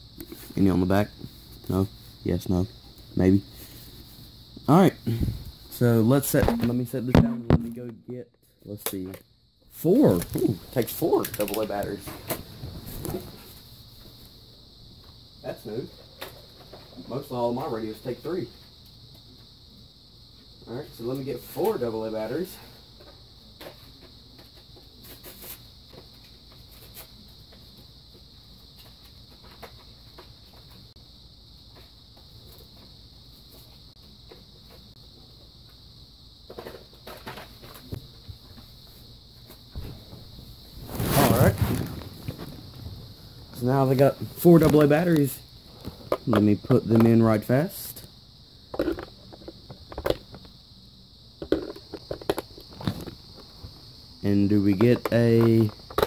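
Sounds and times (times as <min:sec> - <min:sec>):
high-pitched chirring drone: 0:06.4 - 0:08.1.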